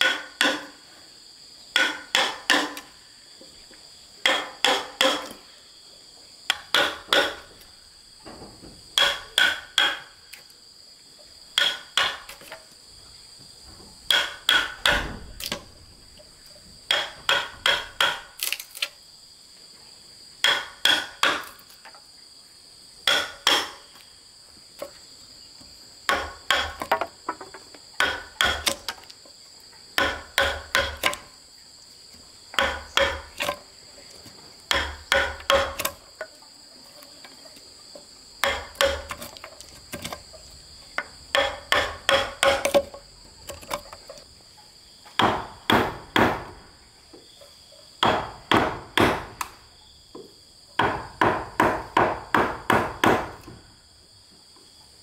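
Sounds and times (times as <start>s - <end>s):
hammer striking wood chisel: 0.0s - 0.8s, 1.8s - 2.9s, 4.2s - 5.4s, 6.5s - 7.6s, 9.0s - 10.2s, 11.6s - 12.5s, 14.1s - 15.6s, 16.9s - 18.4s, 20.4s - 21.6s, 23.0s - 23.9s, 26.1s - 27.4s, 28.0s - 28.9s, 30.0s - 31.3s, 32.6s - 33.6s, 34.7s - 36.0s, 38.4s - 39.4s, 41.0s - 43.7s, 45.2s - 46.6s, 48.0s - 49.6s, 50.8s - 53.6s
insects droning: 0.0s - 55.0s.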